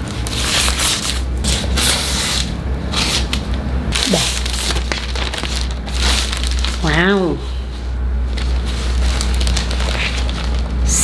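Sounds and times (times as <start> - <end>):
steady low hum: 0.0 - 11.0
plastic crinkling: 3.1 - 7.3, 8.2 - 11.0.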